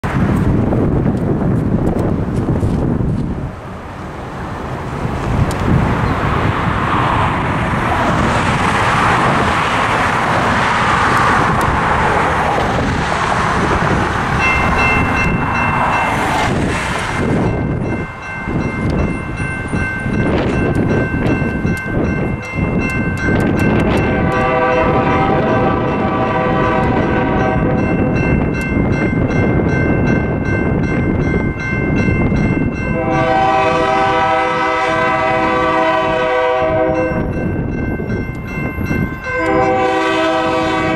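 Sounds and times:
road traffic passing: 0.0s - 40.9s
crossing bells ringing: 13.7s - 40.9s
locomotive horn chord: 24.0s - 27.9s, 32.9s - 37.3s, 39.3s - 40.9s.

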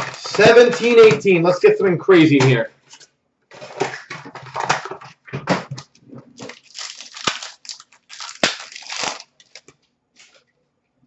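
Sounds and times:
foil wrapper crinkling and tearing: 0.0s - 1.0s, 6.3s - 10.4s.

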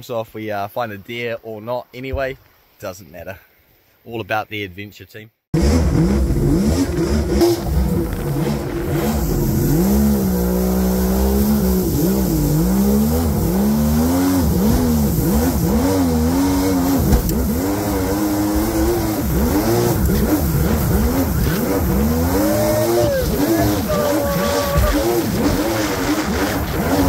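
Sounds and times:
two-stroke boat engine revving: 5.6s - 27.0s
thump: 17.0s - 17.4s.

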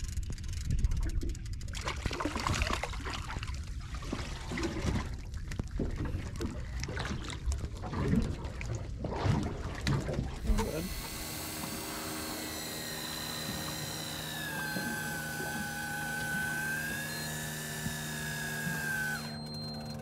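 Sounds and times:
boat noise: 6.4s - 20.0s.

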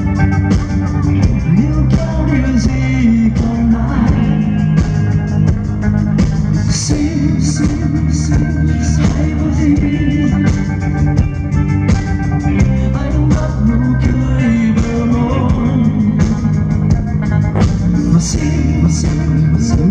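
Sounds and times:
bass: 0.0s - 19.9s
drum kit beat: 0.0s - 19.9s
electric guitars: 0.0s - 19.9s
male singer: 1.3s - 5.1s, 6.6s - 11.2s, 12.6s - 16.8s, 17.6s - 19.9s.

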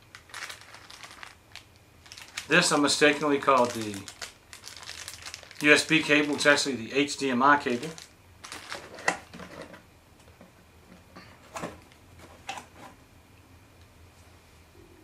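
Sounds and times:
cardboard box and plastic handled: 7.7s - 9.8s.

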